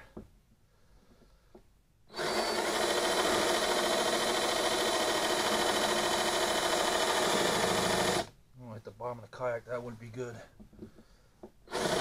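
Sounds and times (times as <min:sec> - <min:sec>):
cordless drill boring plastic: 0:02.1 - 0:08.3, 0:11.7 - 0:12.0.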